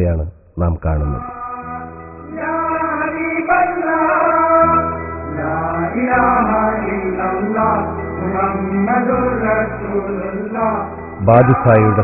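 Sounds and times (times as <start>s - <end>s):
held low notes: 0.0s - 1.3s, 11.2s - 12.0s
person singing chant-like melody: 11.2s - 12.0s.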